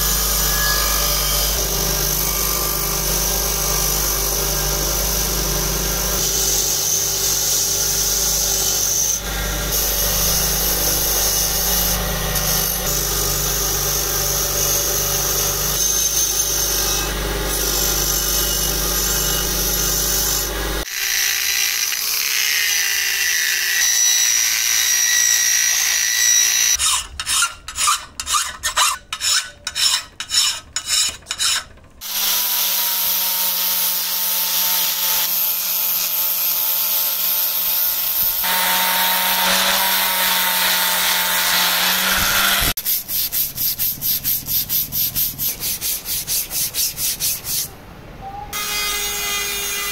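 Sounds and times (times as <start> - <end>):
steady power tool: 0.0 - 26.8, 31.4 - 42.8
angle grinder on iron: 0.0 - 42.8
bench grinder grinding iron: 0.0 - 42.8
file rasping on iron: 26.7 - 32.3.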